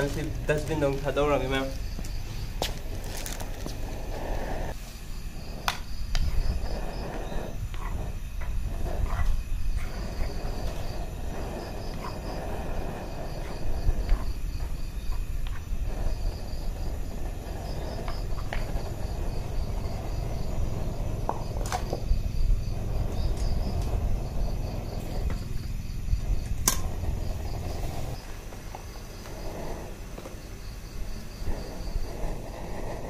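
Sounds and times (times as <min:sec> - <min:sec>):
insects chirping: 0:00.0 - 0:33.0
low rumble: 0:15.7 - 0:28.2.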